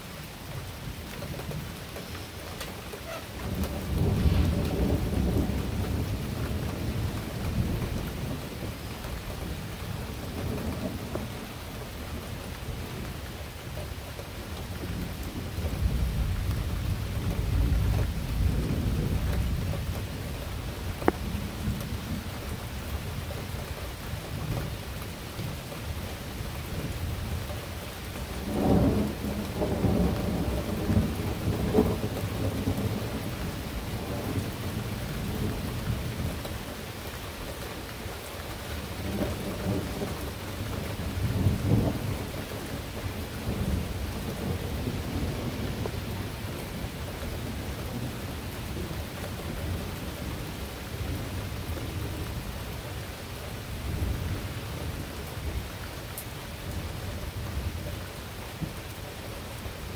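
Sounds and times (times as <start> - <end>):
steady rain: 0.0 - 59.9
thunder rumbling: 3.0 - 11.6, 28.2 - 36.6, 38.8 - 52.5.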